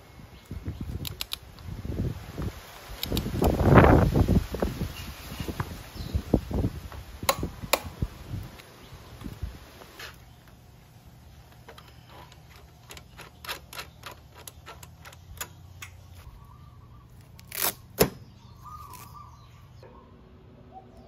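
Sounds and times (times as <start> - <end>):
adjuster nut clicking: 11.5 - 16.1
velcro strap ripping: 17.2 - 18.1.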